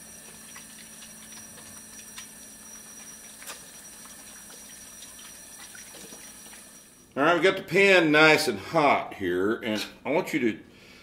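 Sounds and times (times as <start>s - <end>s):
pan hissing and crackling: 0.0s - 6.9s.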